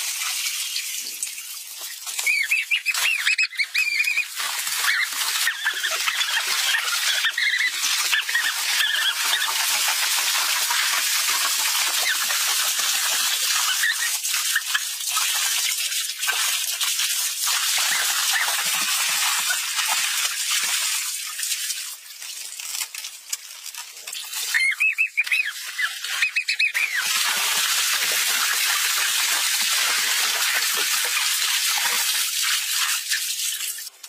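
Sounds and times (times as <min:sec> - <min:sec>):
pool water splashing: 0:00.0 - 0:22.9, 0:24.0 - 0:34.0.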